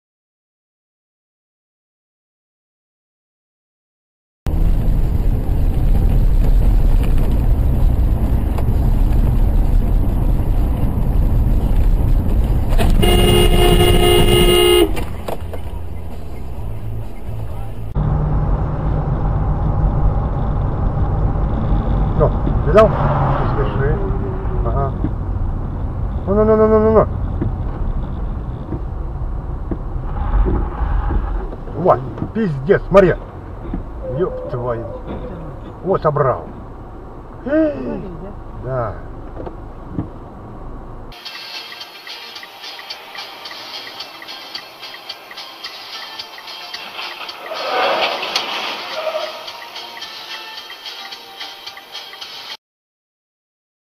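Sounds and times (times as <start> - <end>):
car road and engine rumble: 4.5 - 50.0
car horn: 12.8 - 17.8, 48.8 - 50.6.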